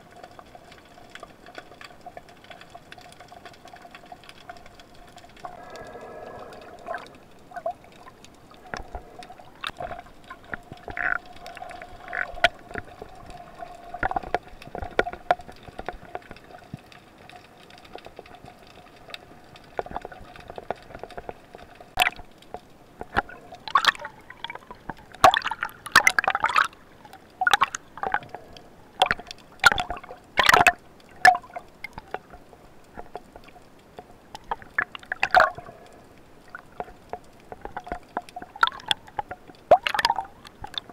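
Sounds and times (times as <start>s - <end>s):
faint steady hum: 0.0s - 40.9s
underwater gurgling and bubbling: 0.1s - 22.4s, 23.0s - 40.9s.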